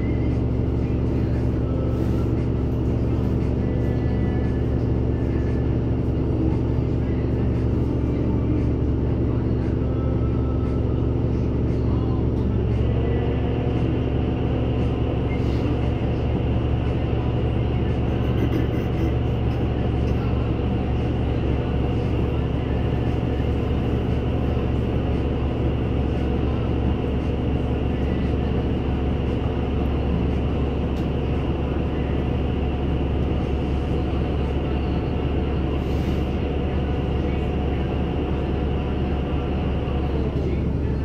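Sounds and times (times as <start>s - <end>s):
bus engine hum: 0.0s - 41.0s.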